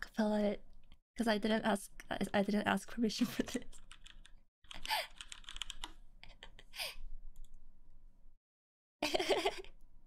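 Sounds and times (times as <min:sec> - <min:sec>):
woman giggling: 0:03.2 - 0:03.7, 0:09.0 - 0:09.8.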